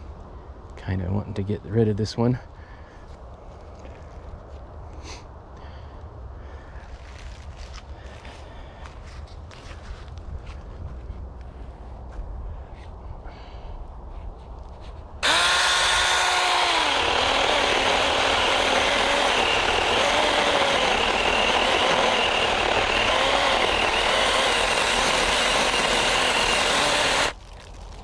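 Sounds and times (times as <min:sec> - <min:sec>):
chainsaw cutting wood: 0:15.2 - 0:27.6.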